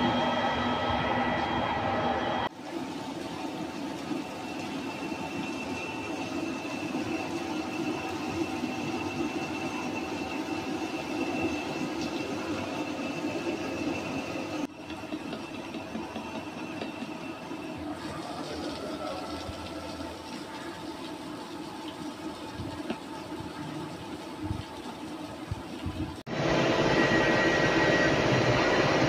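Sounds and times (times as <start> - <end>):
high steady whine: 26.3 - 29.0.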